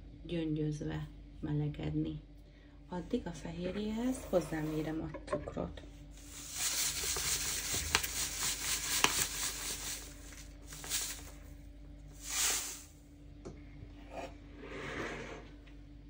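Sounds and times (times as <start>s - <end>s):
sugar pouring hiss: 6.2s - 11.5s, 12.1s - 13.0s.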